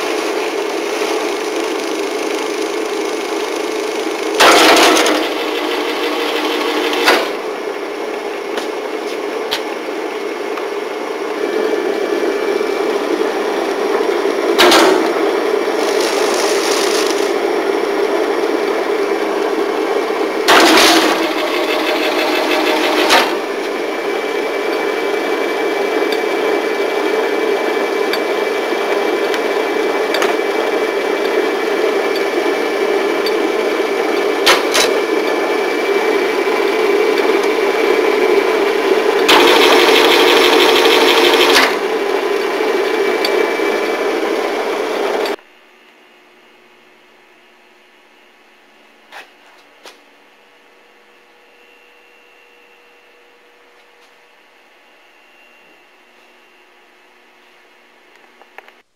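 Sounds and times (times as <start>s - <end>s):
binding machine hum and rattle: 0.0s - 45.4s.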